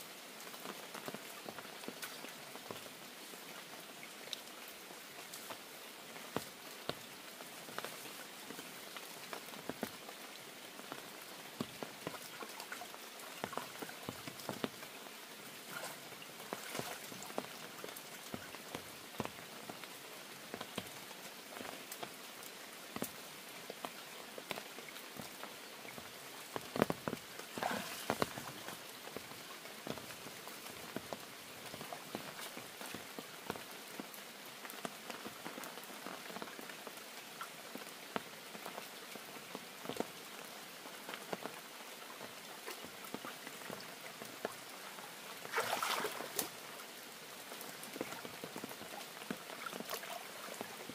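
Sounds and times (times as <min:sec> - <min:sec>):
rain falling: 0:00.0 - 0:50.9
raindrops tapping: 0:06.3 - 0:10.1, 0:10.8 - 0:19.9, 0:22.9 - 0:36.5.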